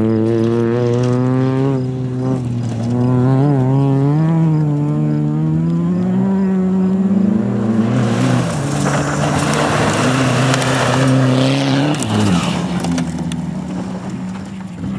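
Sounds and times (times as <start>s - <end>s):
tyres sliding on dirt: 0.0s - 3.8s, 7.0s - 14.9s
turbodiesel engine running: 0.0s - 14.9s.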